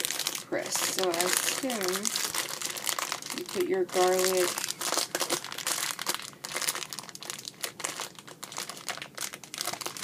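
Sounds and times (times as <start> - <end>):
packaging crinkling: 0.0 - 10.0.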